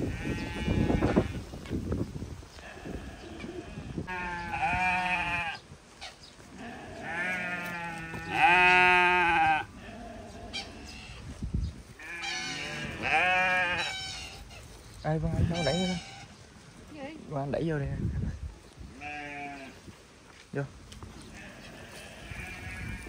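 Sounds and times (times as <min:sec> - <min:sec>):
sheep bleating: 0:00.1 - 0:01.4, 0:02.6 - 0:05.6, 0:06.6 - 0:11.1, 0:12.0 - 0:14.2, 0:19.0 - 0:19.8, 0:21.3 - 0:23.0.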